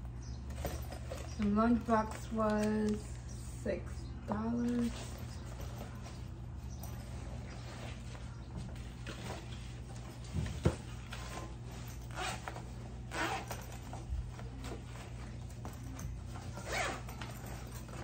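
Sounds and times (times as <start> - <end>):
bag handling rustle: 0.2 - 3.0, 4.6 - 18.0
bag zipper being pulled: 11.3 - 13.8, 16.4 - 18.0.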